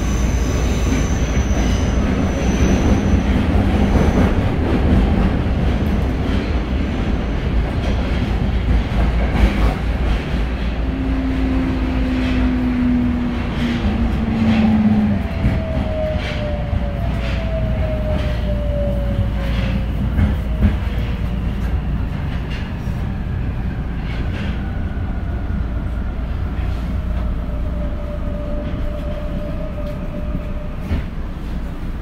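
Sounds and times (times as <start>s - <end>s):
rail clacks: 0.0s - 25.0s
subway train rumbling: 0.0s - 32.0s.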